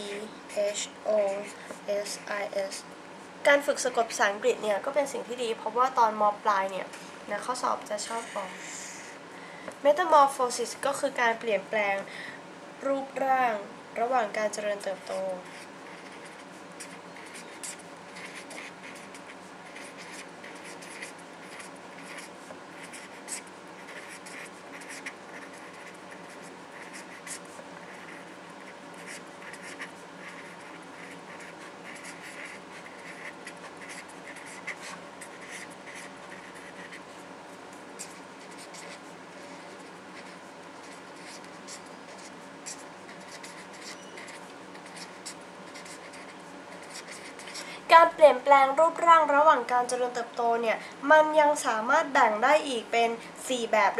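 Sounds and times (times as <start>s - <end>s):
faint steady hum: 0.0s - 53.9s
pen scratching on paper: 7.6s - 9.1s, 14.8s - 47.7s.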